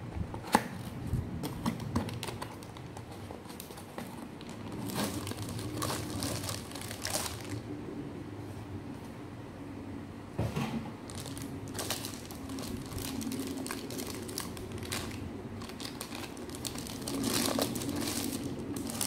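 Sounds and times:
plastic bag crinkling: 2.0 - 7.6, 11.1 - 19.0.

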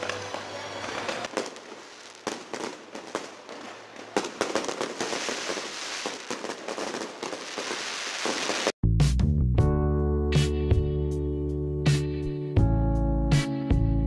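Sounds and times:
firework bangs: 0.0 - 8.8
fireworks crackling pops: 0.0 - 8.8.

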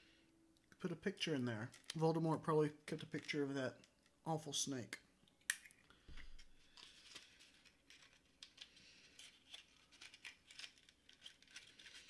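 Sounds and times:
hands handling locket and packaging: 1.7 - 2.0, 5.7 - 12.0.

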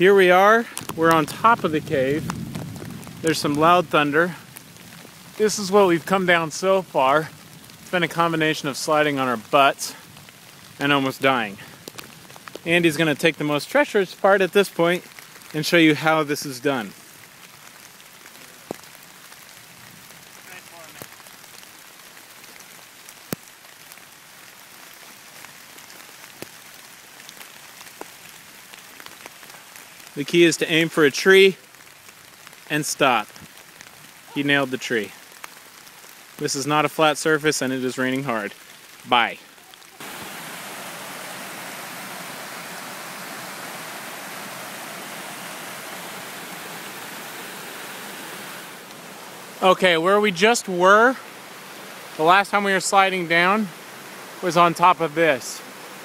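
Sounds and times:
creek rushing over rocks: 0.0 - 2.6, 36.3 - 56.0
heavy rain on trees: 0.0 - 56.0.

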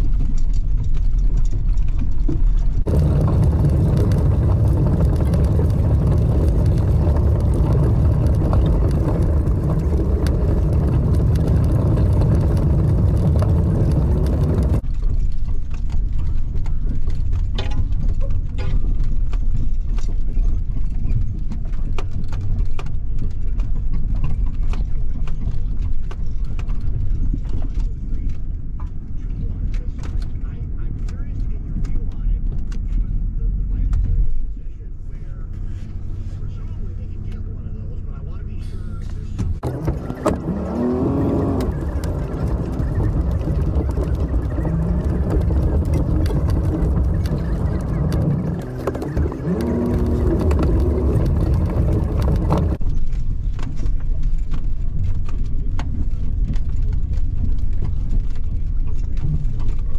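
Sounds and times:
light clicks and rattles: 0.0 - 37.7
pickup engine drone from cab: 2.8 - 14.8, 30.4 - 52.8.

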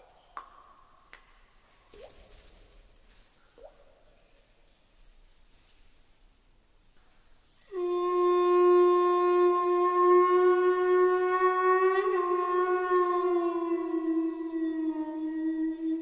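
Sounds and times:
bone flute long note: 7.7 - 16.0.

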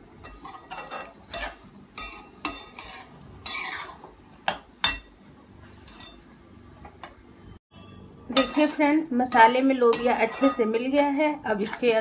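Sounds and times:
spatula scraping metal pan: 0.2 - 4.1, 8.3 - 12.0.

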